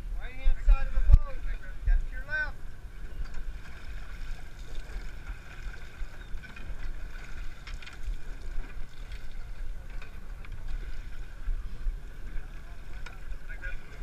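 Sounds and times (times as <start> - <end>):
boat engine rumbling: 0.0 - 14.0
wind buffeting microphone: 0.0 - 14.0.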